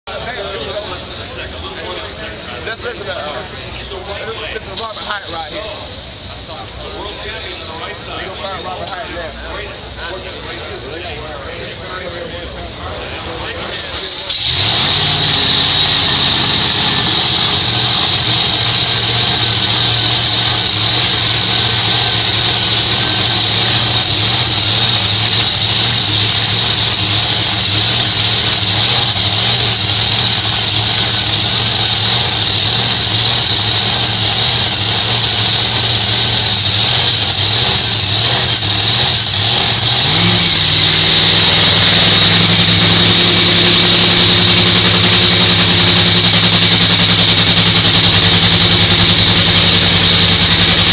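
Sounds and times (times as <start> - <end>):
dragster engine idling loudly: 0.1 - 50.9.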